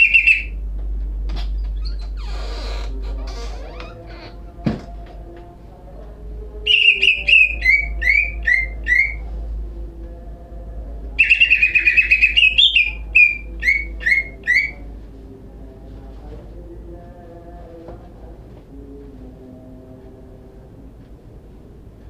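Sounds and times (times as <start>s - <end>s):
bird chattering trill: 0.0s - 0.6s, 6.7s - 9.2s, 11.2s - 14.8s
bird whistling song: 0.0s - 0.6s, 6.7s - 9.2s, 11.2s - 14.8s
faint low hum: 0.0s - 22.0s.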